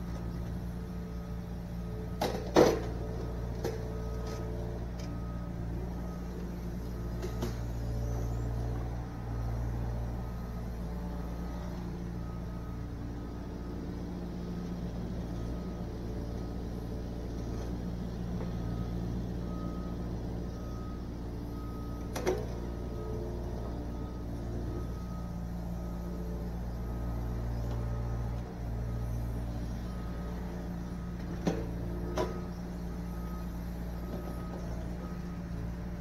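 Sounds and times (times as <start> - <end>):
excavator diesel engine running: 0.0 - 36.0.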